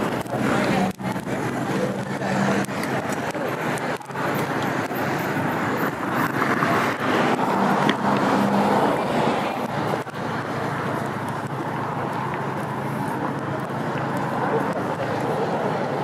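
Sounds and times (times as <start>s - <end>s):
vehicle passing: 0.0s - 16.0s.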